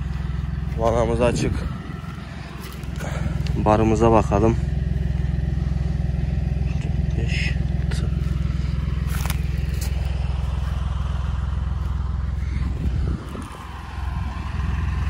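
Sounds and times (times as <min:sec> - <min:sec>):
engine running steadily: 0:00.0 - 0:15.0.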